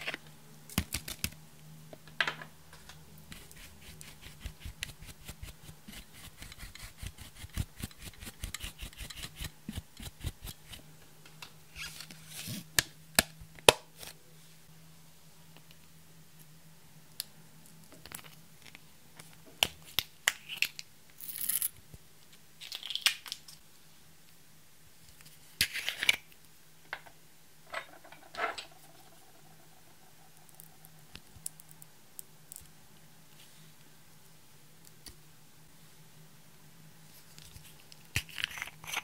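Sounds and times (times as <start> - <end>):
scraping and rustling: 27.7 - 30.8.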